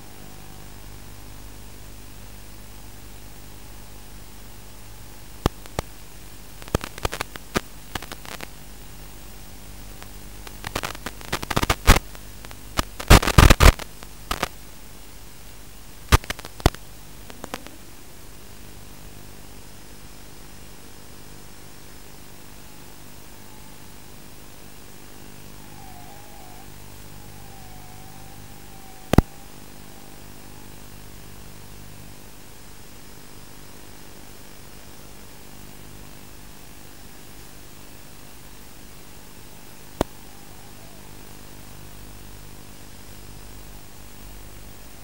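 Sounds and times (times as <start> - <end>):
static hiss: 0.0 - 45.0
loud radio crackling bursts: 5.4 - 8.8, 9.9 - 14.6, 16.0 - 17.8, 25.1 - 31.3, 39.7 - 41.8
faint wavering tone: 22.1 - 32.1, 39.1 - 42.6.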